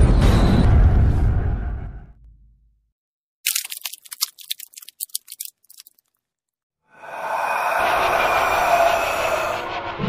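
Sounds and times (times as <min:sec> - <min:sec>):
dark horror drone music: 0:06.9 - 0:10.0.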